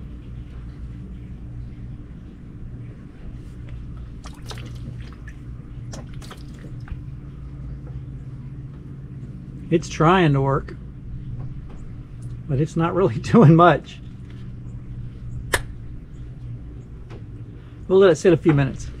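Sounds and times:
low machine hum: 0:00.0 - 0:19.0
liquid squirting and splashing: 0:04.2 - 0:07.0.

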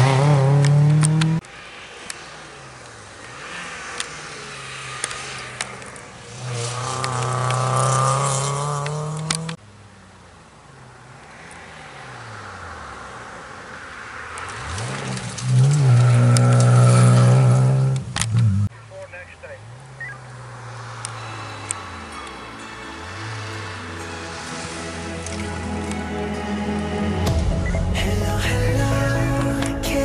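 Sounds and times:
rally car engine at full throttle: 0:00.0 - 0:26.8
rally car passing at high revs: 0:00.0 - 0:28.3.

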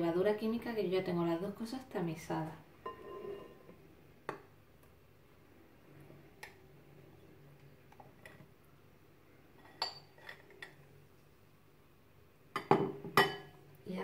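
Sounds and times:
glass bowls clinking: 0:02.8 - 0:03.7, 0:09.6 - 0:10.8, 0:12.6 - 0:13.6
spoon scraping a glass bowl: 0:02.9 - 0:03.7.

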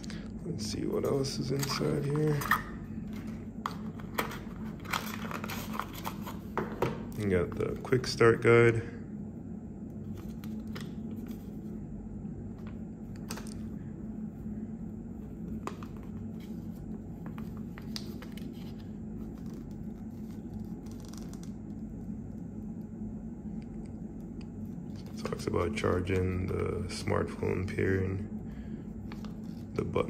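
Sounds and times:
steady low hum: 0:00.0 - 0:30.0
paper crinkling and tapping: 0:17.2 - 0:21.5.

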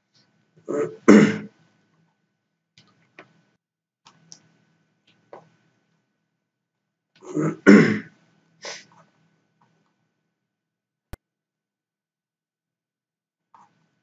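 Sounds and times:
man clearing his throat: 0:00.7 - 0:01.5, 0:07.2 - 0:08.1.

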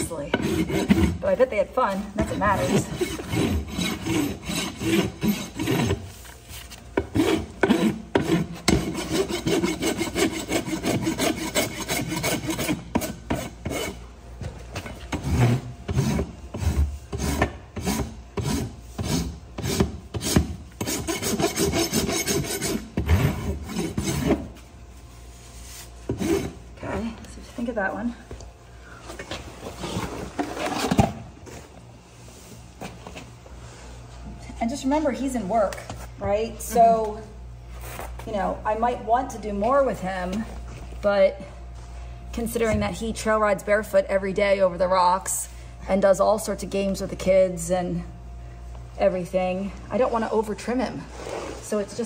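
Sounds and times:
hoof rasp filing: 0:00.0 - 0:01.4, 0:02.2 - 0:06.0, 0:07.0 - 0:14.0, 0:15.2 - 0:24.4.

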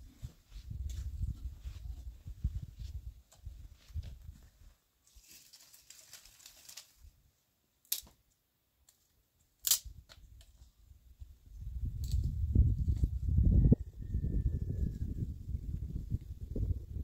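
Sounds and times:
soft rustle: 0:00.0 - 0:07.2.

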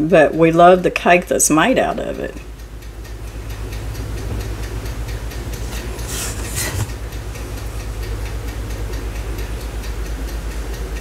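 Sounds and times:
kitchen appliance pulsing hum: 0:00.0 - 0:11.0
cake crumbs rustling: 0:05.5 - 0:07.0.

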